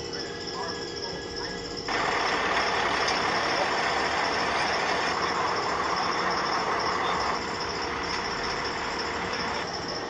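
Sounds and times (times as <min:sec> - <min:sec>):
truck engine running: 0:00.0 - 0:10.0.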